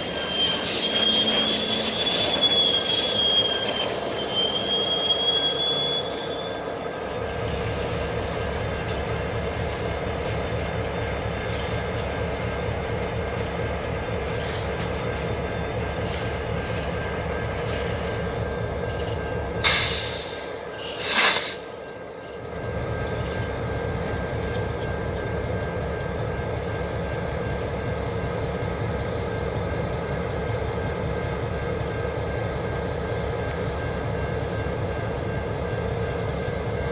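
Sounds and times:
wheel squeal: 0:00.0 - 0:13.5
locomotive engine rumble: 0:00.0 - 0:36.9.

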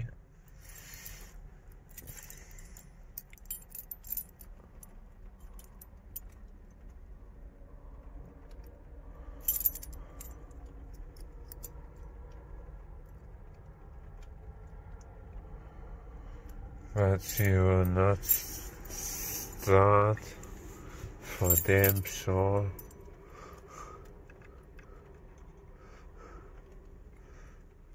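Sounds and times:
car keys jingling: 0:00.4 - 0:06.5, 0:09.4 - 0:11.7, 0:17.0 - 0:25.6.

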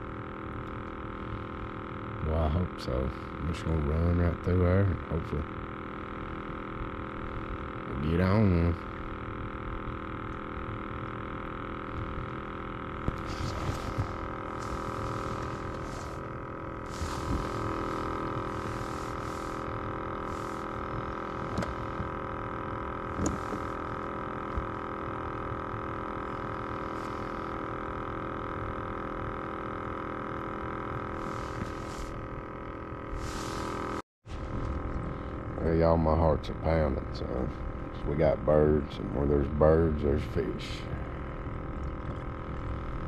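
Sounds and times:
electric trolling motor whine: 0:00.0 - 0:43.0
short hissy bursts: 0:13.2 - 0:21.6, 0:33.2 - 0:34.0.

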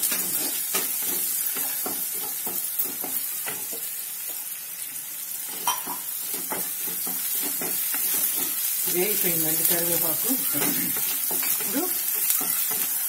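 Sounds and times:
vegetables sizzling in hot oil: 0:00.0 - 0:13.0
wooden spatula scraping pan: 0:05.5 - 0:13.0.

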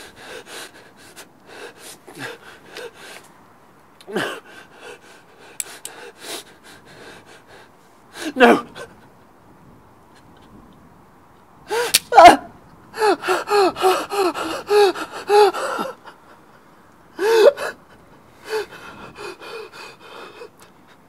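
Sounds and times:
man gasping and sobbing: 0:04.0 - 0:05.3, 0:08.1 - 0:09.0, 0:12.9 - 0:20.6.

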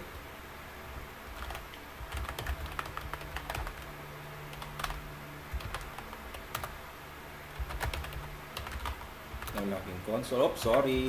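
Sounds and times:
keyboard typing: 0:01.3 - 0:06.8, 0:07.5 - 0:09.7.

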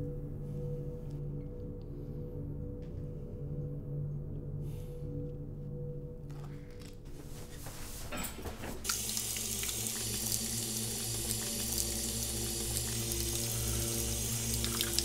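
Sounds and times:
faucet water running into basin: 0:08.8 - 0:15.0.

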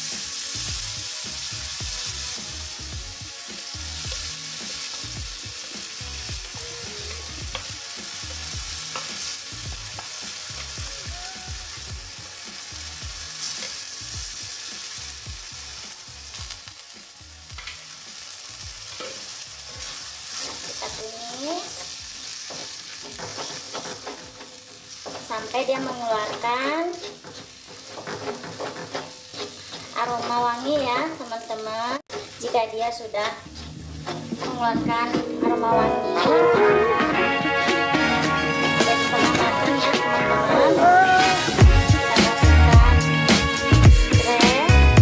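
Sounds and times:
paste sizzling in hot oil: 0:00.0 - 0:34.7
spatula scraping metal wok: 0:00.1 - 0:16.5, 0:17.5 - 0:31.5, 0:32.1 - 0:35.4.

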